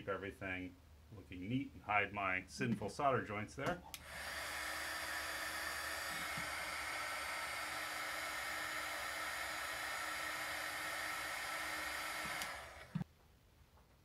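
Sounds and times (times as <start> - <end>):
heat gun blowing: 3.9 - 13.0.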